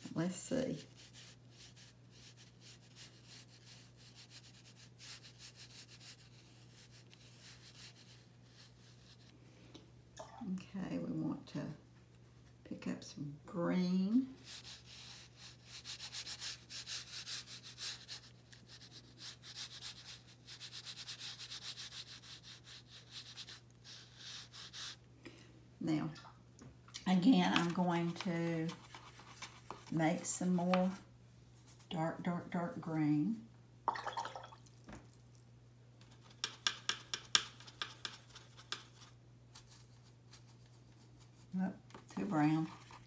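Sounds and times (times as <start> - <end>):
brush scrubbing on paper: 0.6 - 9.3, 14.4 - 25.0, 27.2 - 30.6, 36.1 - 43.0
brush tapping in plastic palette: 36.2 - 39.0.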